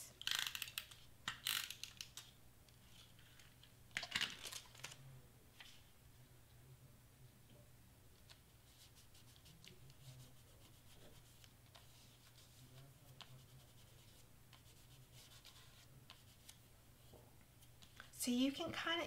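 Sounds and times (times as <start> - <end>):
clicks and rustles of cardstock: 2.9 - 5.8.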